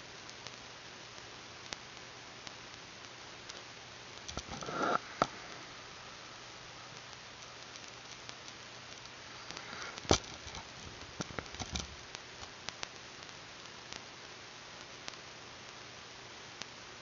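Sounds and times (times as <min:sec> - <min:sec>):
microphone hiss: 0:00.0 - 0:17.0.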